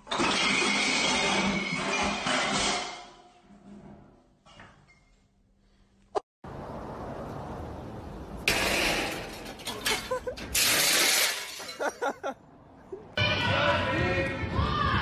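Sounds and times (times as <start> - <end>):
glass sheet shattering: 8.5 - 11.9
glass fragments clinking: 9.4 - 12.0.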